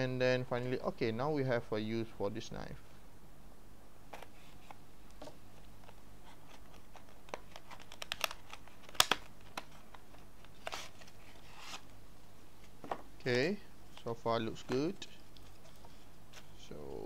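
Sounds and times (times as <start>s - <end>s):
packaging clicks and crinkles: 6.6s - 11.8s.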